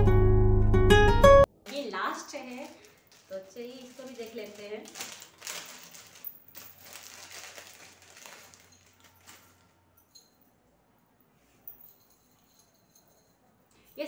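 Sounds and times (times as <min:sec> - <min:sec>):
plastic packet crinkling: 0:01.7 - 0:09.8.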